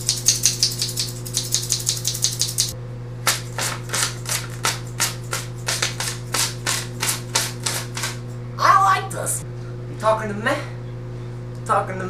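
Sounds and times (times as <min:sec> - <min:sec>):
scissors snipping paper: 0:00.0 - 0:08.2.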